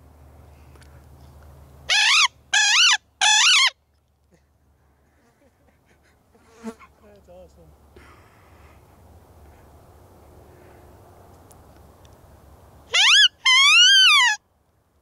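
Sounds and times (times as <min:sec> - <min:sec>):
coyote howl imitation: 0:01.9 - 0:03.7, 0:12.9 - 0:14.4.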